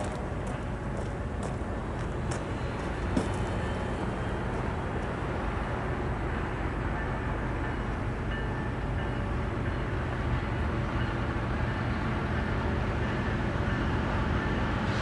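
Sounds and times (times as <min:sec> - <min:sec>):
distant train rumble: 0:00.0 - 0:15.0.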